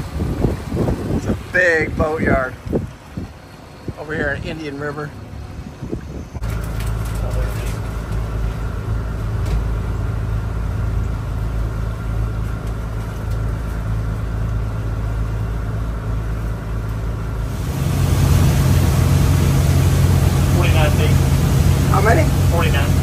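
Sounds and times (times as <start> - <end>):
boat diesel engines droning: 0.0 - 23.0
rushing noise: 17.4 - 23.0.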